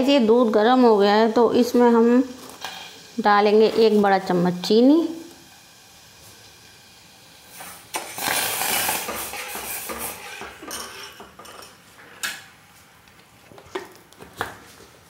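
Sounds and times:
spoon stirring in steel saucepan: 9.0 - 11.8.

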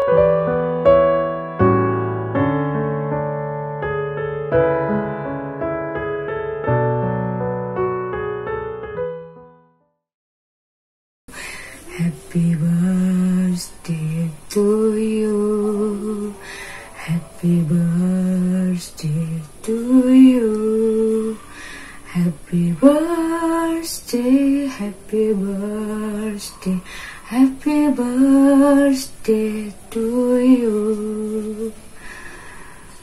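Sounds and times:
woman singing solo: 11.4 - 31.9.

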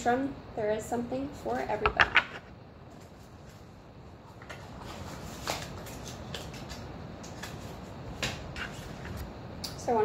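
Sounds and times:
cards rustling: 4.5 - 9.1.

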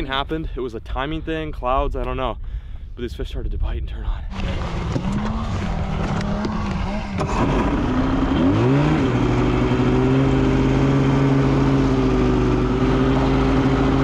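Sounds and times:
snowmobile engine accelerating: 4.3 - 14.0.

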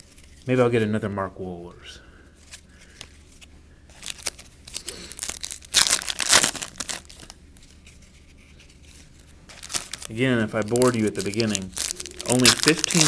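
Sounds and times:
foil card packs crinkling: 3.9 - 7.4, 9.5 - 13.0.

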